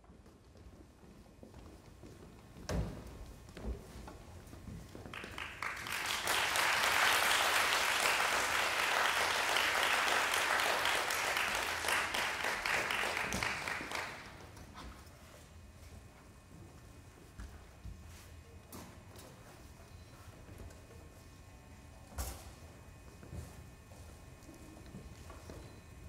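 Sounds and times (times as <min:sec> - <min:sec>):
audience applauding: 0:05.1 - 0:14.4.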